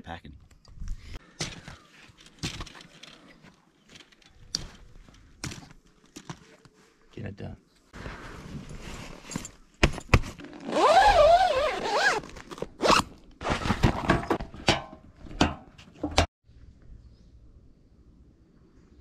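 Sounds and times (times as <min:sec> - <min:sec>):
canvas rustling: 0:07.9 - 0:14.4
zipper drawn: 0:10.4 - 0:13.7.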